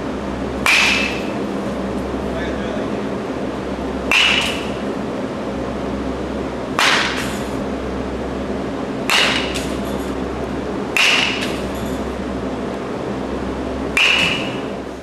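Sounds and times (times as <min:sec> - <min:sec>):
steady hum: 0:00.0 - 0:15.0
bat cracking against ball: 0:00.6 - 0:01.4, 0:04.1 - 0:04.8, 0:06.8 - 0:07.4, 0:09.1 - 0:09.9, 0:11.0 - 0:11.8, 0:14.0 - 0:14.7.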